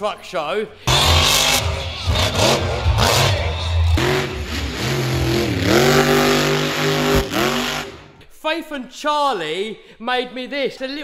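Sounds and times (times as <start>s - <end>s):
monster truck engine revving: 0.9s - 8.2s.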